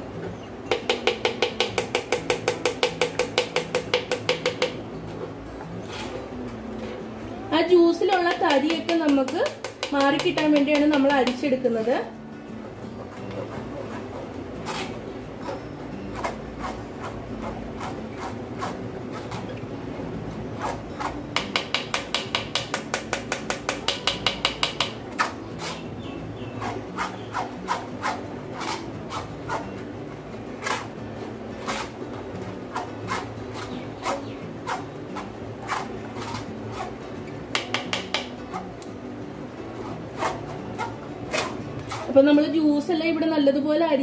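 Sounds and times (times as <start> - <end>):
scraping pulp in mesh strainer: 26.5 - 29.8, 32.7 - 37.1.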